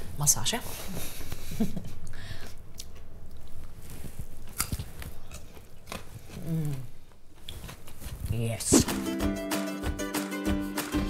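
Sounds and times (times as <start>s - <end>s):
carrot crunching: 2.4s - 9.0s.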